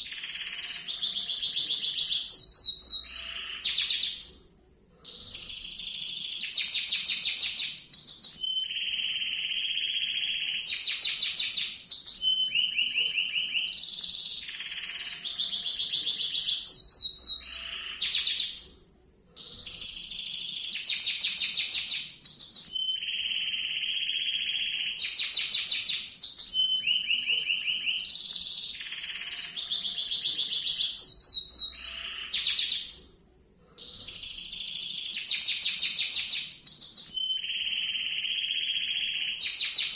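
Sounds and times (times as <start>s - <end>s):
canary singing trills: 0.0s - 4.3s, 5.0s - 18.7s, 19.4s - 33.0s, 33.8s - 39.9s.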